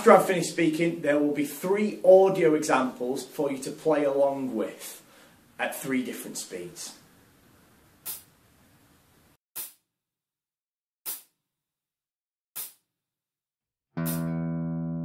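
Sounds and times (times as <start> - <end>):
metronome clicking: 14.0 - 14.3.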